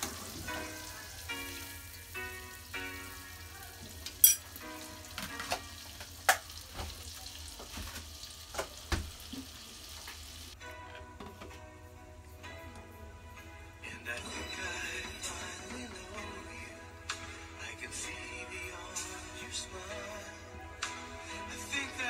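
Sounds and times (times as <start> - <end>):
butter sizzling in a saucepan: 0.0 - 10.6.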